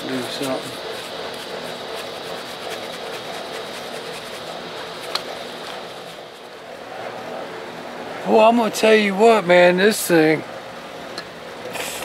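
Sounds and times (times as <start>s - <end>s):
brush scrubbing engine parts: 0.0s - 6.6s.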